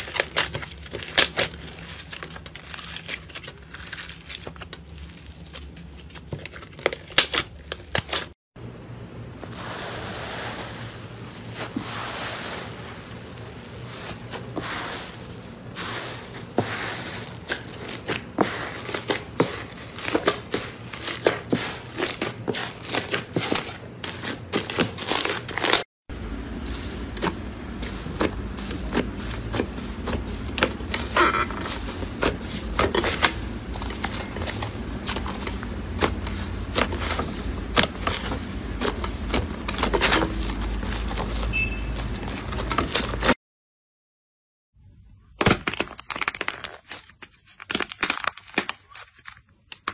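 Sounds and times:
steady low hum: 26.1 - 41.4.

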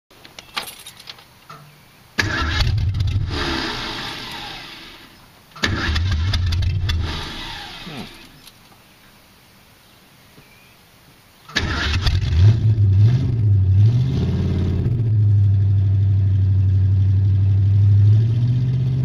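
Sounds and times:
car engine starting and dying: 2.2 - 8.5, 11.5 - 19.0.

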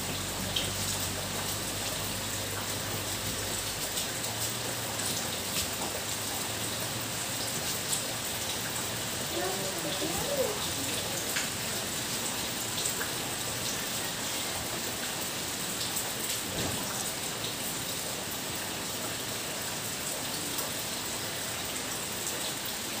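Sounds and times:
faint rain ticks: 0.0 - 14.4
steady rain hiss: 0.0 - 23.0.

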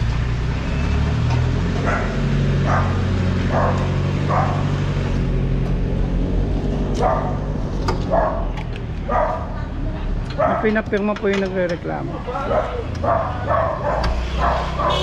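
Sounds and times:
dog barking: 1.8 - 4.7, 7.0 - 7.4, 8.0 - 9.7, 10.4 - 10.8, 12.4 - 15.0.

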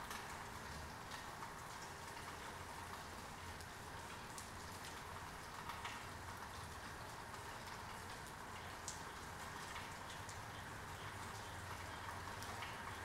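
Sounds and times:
raindrops ticking close by: 0.0 - 13.0.

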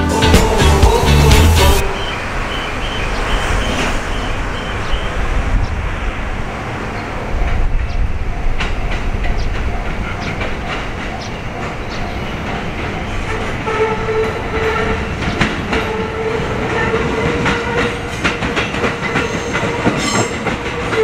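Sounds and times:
wheels clicking over rail joints: 7.3 - 21.0.

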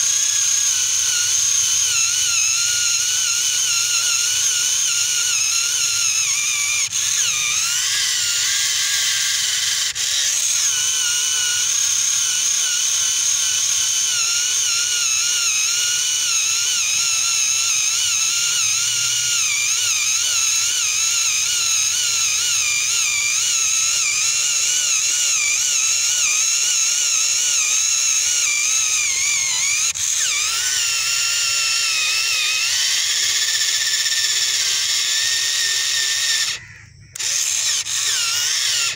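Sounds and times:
small electric motor whining: 0.0 - 38.9.

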